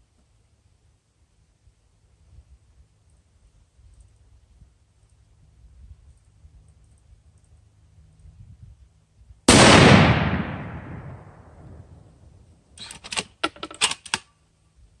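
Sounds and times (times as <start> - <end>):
rifle shot: 9.5 - 11.8
metallic rifle bolt clacks: 12.8 - 14.4.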